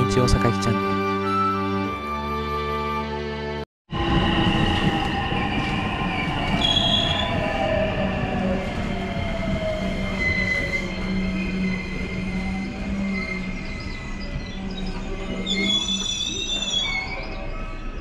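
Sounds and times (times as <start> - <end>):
wheel squeal: 9.7 - 18.0.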